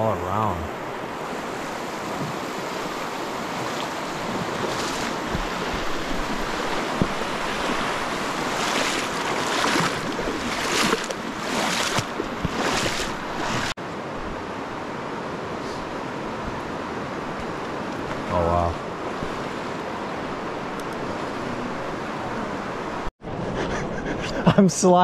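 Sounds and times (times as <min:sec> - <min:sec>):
river water rushing: 0:00.0 - 0:23.1
splashing from wading: 0:02.0 - 0:13.8.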